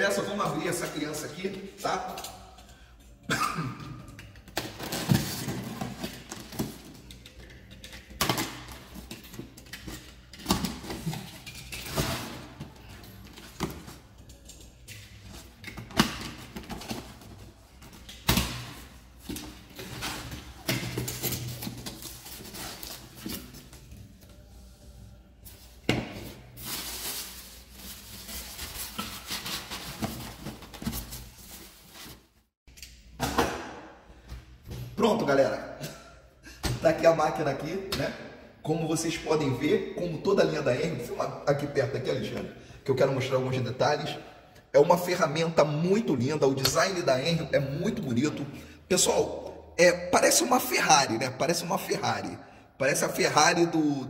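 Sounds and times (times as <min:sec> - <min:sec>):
plastic and polystyrene rustling: 0:19.1 - 0:32.5.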